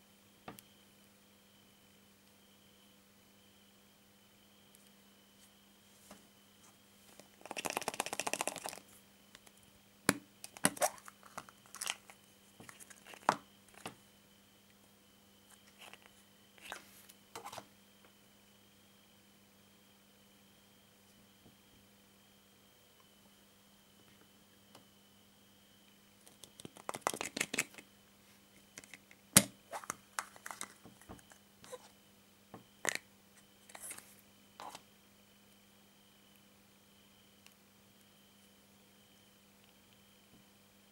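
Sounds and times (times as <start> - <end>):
plastic capsule crinkling rattle: 7.2 - 9.5, 10.4 - 13.9, 26.3 - 27.8, 29.8 - 30.8.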